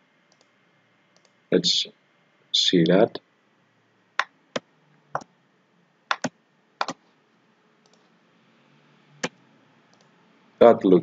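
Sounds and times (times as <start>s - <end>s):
computer mouse clicking: 0.3s - 0.5s, 1.2s - 1.4s, 6.1s - 7.0s, 7.8s - 8.1s, 9.2s - 10.1s.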